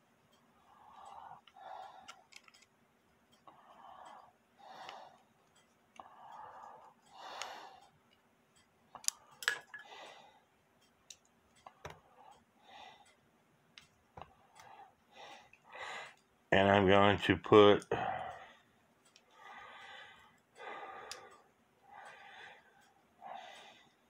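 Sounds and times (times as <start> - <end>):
small metallic clicks: 0.3 - 16.4, 19.0 - 24.0
heavy breathing: 0.6 - 2.4, 3.4 - 5.4, 6.0 - 8.0, 14.2 - 16.2, 17.9 - 24.0.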